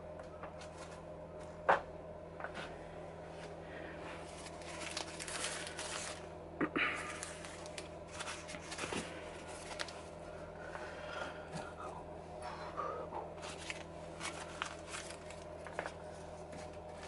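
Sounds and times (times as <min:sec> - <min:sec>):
newspaper rustling and crinkling: 0:04.2 - 0:06.3, 0:07.0 - 0:10.2, 0:13.4 - 0:17.0.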